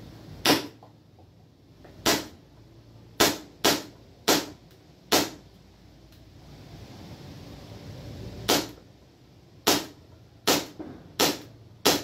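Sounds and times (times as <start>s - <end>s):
airsoft pistol shots: 0.4s - 0.8s, 2.0s - 2.4s, 3.2s - 5.4s, 8.5s - 8.8s, 9.6s - 12.0s.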